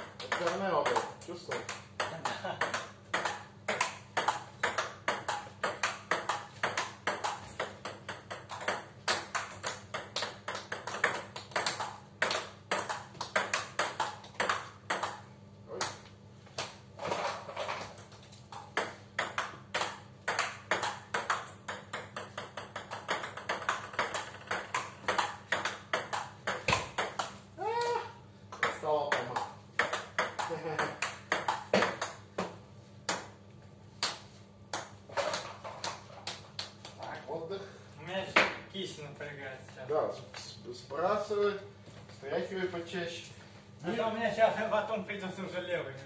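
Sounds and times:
ball clicking off paddles: 0.0s - 16.8s, 17.8s - 27.4s, 28.5s - 32.4s
ball bouncing on table: 0.1s - 15.2s, 18.0s - 27.4s, 28.5s - 33.4s.

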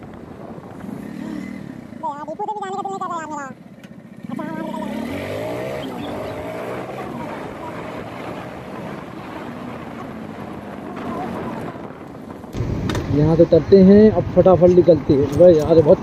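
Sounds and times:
wind rushing over microphone: 0.0s - 1.9s, 5.9s - 16.0s
motorcycle engine running: 3.6s - 16.0s.

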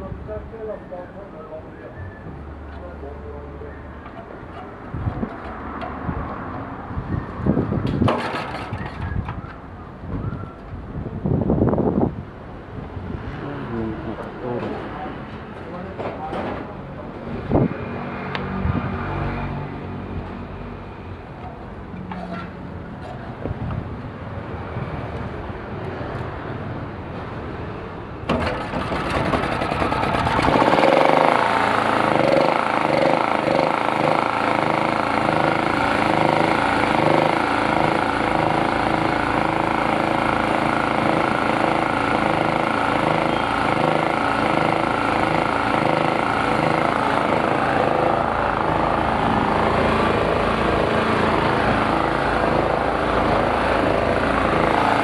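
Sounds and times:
generator engine running: 28.2s - 55.0s.

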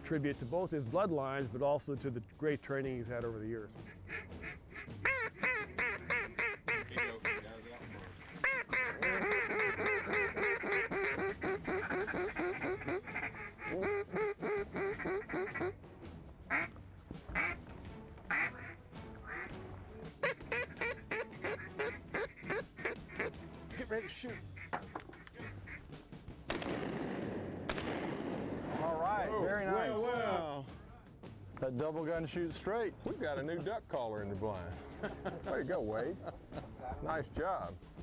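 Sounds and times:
duck calls quacking: 3.8s - 15.8s, 16.5s - 16.7s, 17.3s - 17.6s, 18.3s - 19.6s, 20.2s - 25.9s.

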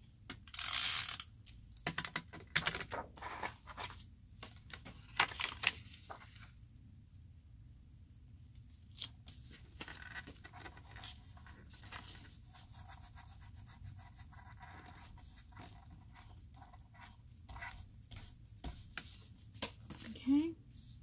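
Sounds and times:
rubbing and scratching of paper: 2.7s - 6.5s, 9.2s - 21.0s.

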